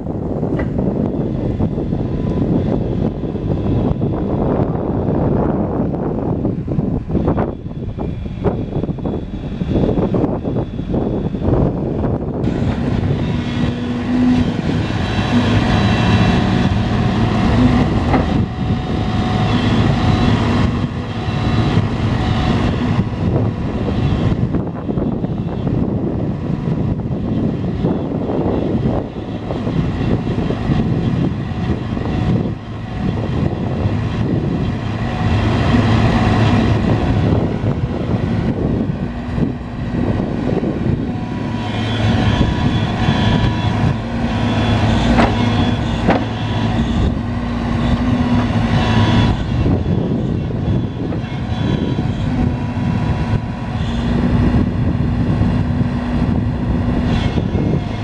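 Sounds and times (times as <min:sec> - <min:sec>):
excavator diesel engine running: 0:00.0 - 0:58.0
sharp knocks: 0:45.1 - 0:46.4.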